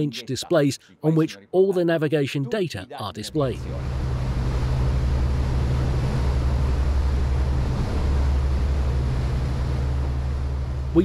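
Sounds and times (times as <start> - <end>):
boat diesel engine drone: 3.3 - 11.0
water rushing from wake: 3.5 - 11.0.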